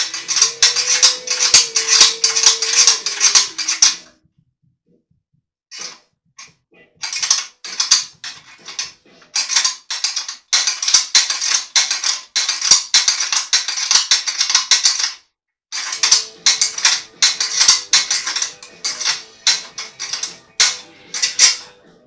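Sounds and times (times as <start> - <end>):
ratchet clicking: 0.0 - 4.0, 7.0 - 15.2, 15.8 - 21.6.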